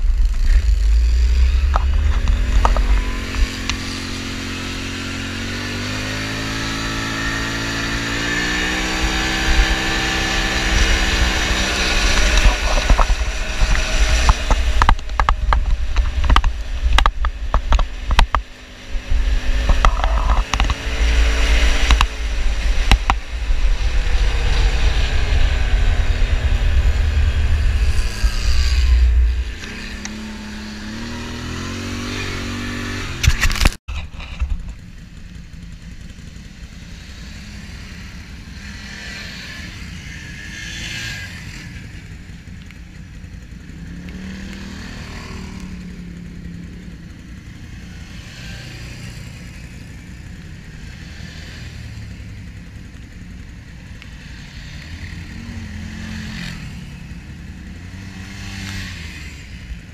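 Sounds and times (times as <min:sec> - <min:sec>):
sharp clicks and knocks: 0:00.0 - 0:03.8, 0:10.8 - 0:23.8, 0:33.1 - 0:34.8
quad bike engine running: 0:00.0 - 0:59.9.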